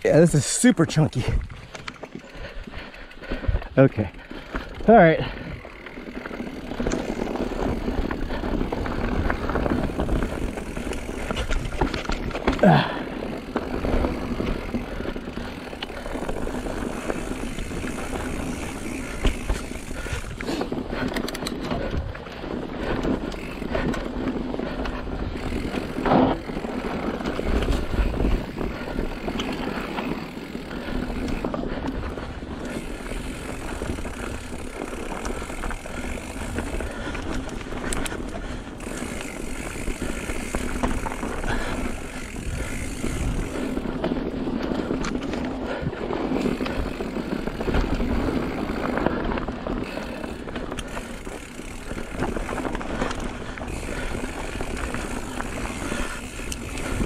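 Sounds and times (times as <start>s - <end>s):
bike rattling: 0.0s - 57.0s
bike tyres rolling over rock: 0.0s - 57.0s.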